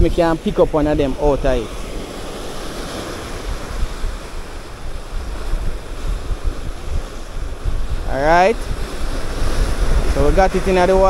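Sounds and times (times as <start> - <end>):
sea surf washing: 0.0 - 11.0
wind buffeting microphone: 0.0 - 11.0.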